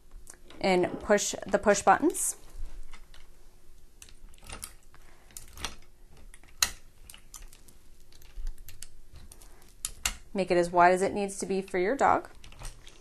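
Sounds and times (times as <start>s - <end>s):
metal frame clicks and rattles: 4.0s - 10.3s, 11.7s - 13.0s.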